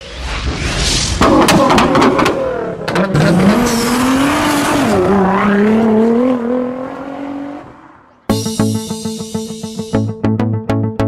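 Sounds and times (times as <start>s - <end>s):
car engine revving: 1.2s - 8.3s.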